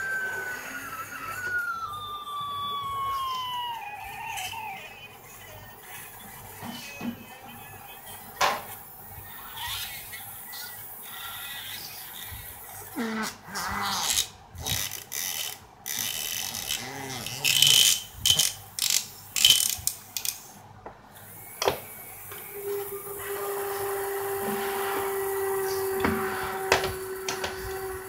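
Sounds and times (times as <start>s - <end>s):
faint steady hum: 0.0s - 28.0s
metal parts clicking and rattling: 17.5s - 20.4s.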